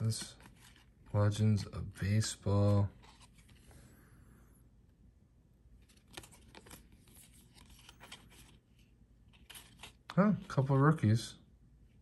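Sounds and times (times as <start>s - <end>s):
trading cards sliding and flicking: 9.3s - 10.1s.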